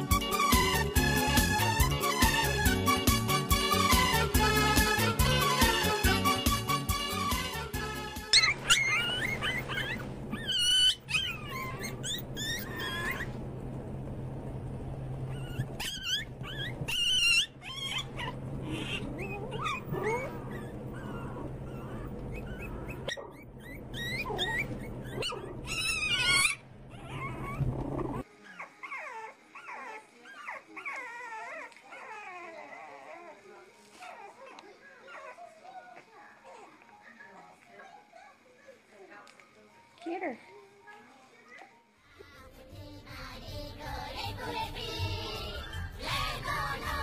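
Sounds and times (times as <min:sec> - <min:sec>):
music: 0:00.0 - 0:09.6, 0:35.9 - 0:47.0
dogs whining: 0:08.2 - 0:13.5, 0:15.1 - 0:38.8, 0:44.4 - 0:47.0
steady low hum: 0:09.3 - 0:28.2.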